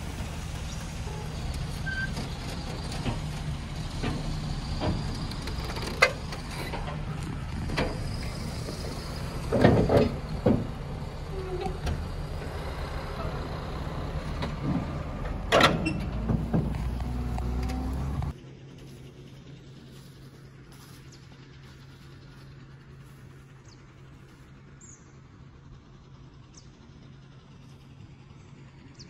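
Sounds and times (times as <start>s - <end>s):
truck diesel engine idling: 0.0s - 29.0s
knocks and thumps: 14.4s - 18.3s.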